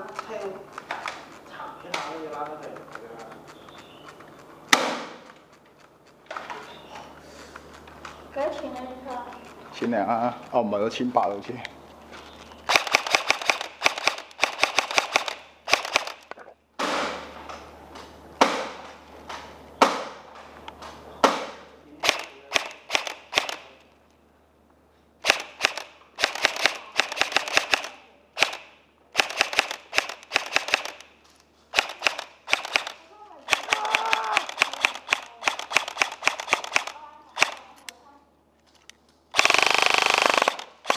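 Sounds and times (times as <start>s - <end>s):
airsoft rifle firing: 4.6s - 5.4s, 12.7s - 17.6s, 18.4s - 20.4s, 21.2s - 23.9s, 25.2s - 37.8s, 39.3s - 40.9s.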